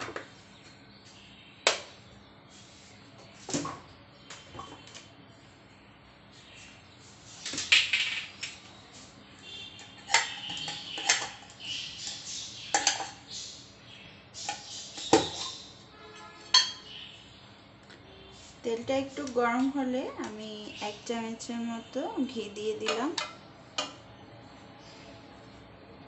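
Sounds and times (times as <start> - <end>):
dishes and utensils clinking: 10.0 - 13.2, 16.1 - 16.9.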